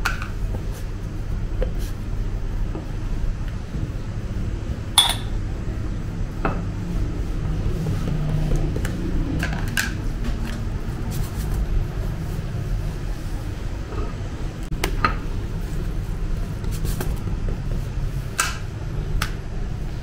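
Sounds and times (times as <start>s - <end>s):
steady low hum: 0.0s - 20.0s
metal bowls clinking on stone: 5.0s - 5.4s.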